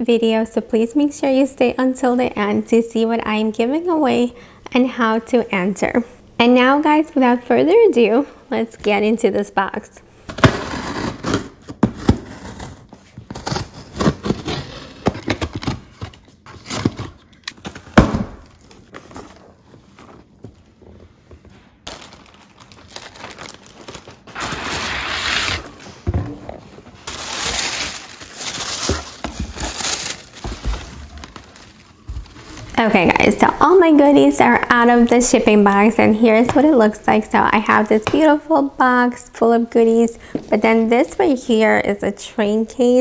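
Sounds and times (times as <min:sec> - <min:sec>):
packing material crinkling: 0:21.8 - 0:25.9, 0:26.9 - 0:33.4.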